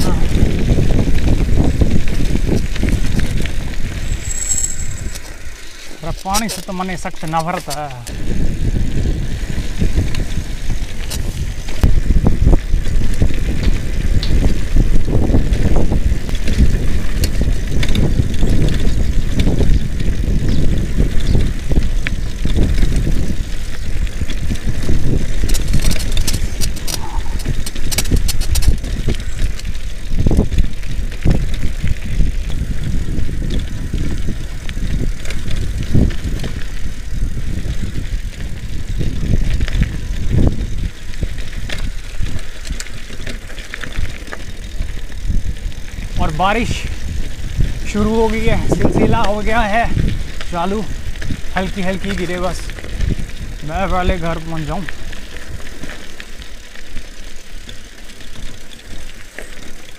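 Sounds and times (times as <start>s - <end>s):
wind on microphone: 0.0s - 56.0s
bike tyres rumbling on gravel: 0.0s - 59.9s
rapid clicks: 25.3s - 29.6s.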